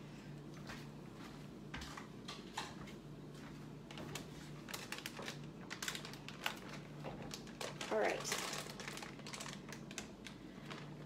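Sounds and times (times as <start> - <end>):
plastic bag crinkling: 3.8 - 11.0.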